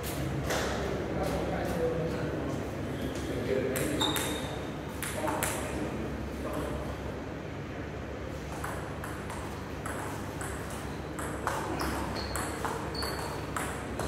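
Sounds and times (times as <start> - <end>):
table tennis ball hits: 3.7 - 5.8, 8.5 - 14.0.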